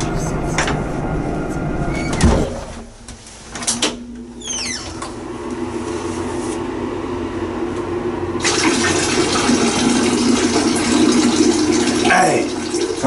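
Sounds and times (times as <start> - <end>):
steady hum: 0.0 - 12.4
water running from shower: 8.4 - 13.0.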